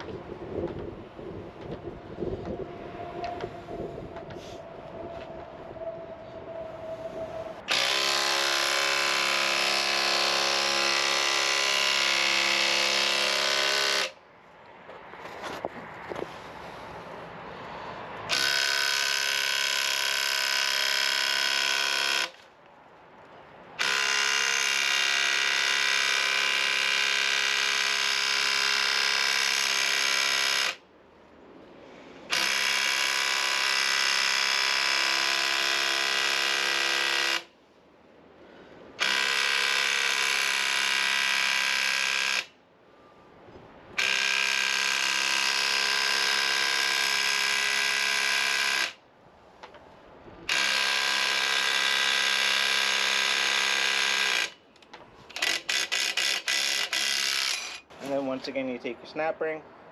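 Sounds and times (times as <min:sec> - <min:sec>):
impact wrench running: 0:07.7 - 0:14.2, 0:18.3 - 0:22.4, 0:23.8 - 0:30.8, 0:32.3 - 0:37.5, 0:39.0 - 0:42.5, 0:44.0 - 0:49.0, 0:50.5 - 0:54.6, 0:55.3 - 0:57.9.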